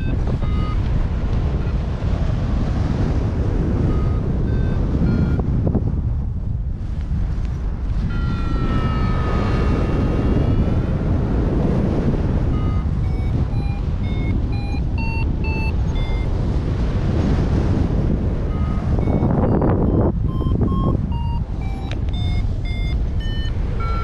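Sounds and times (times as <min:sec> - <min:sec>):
variometer tone and beeps: 0:00.0 - 0:01.9, 0:03.6 - 0:05.6, 0:07.9 - 0:16.5, 0:18.4 - 0:24.0
wind noise on microphone: 0:00.0 - 0:24.0.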